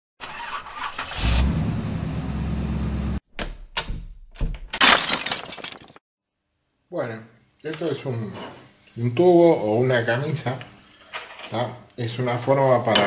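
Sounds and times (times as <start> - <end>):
engine starting and running: 0.2 - 3.2.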